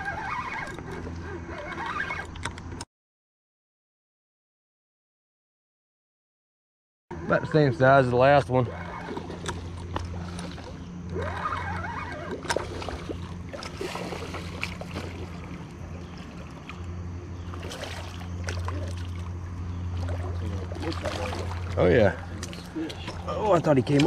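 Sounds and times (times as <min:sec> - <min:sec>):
steady low hum: 0:07.1 - 0:24.0
fish splashing in water: 0:08.7 - 0:23.3.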